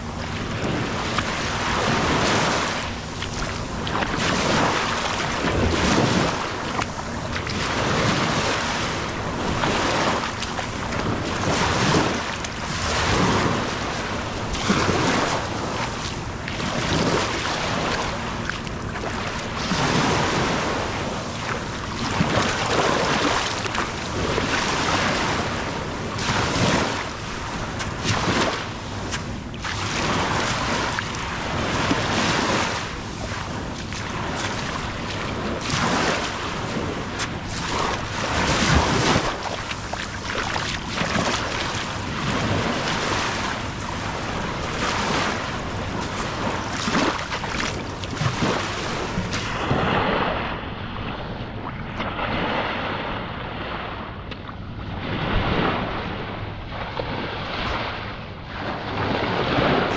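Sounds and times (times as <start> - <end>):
waves washing over sand and pebbles: 0.0 - 59.9.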